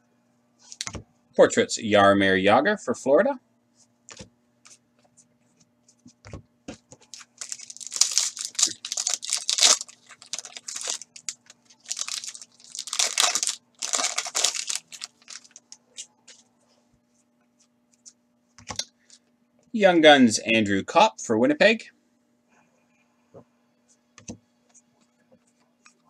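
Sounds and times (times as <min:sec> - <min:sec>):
foil wrapper tearing and crinkling: 0:07.1 - 0:15.6.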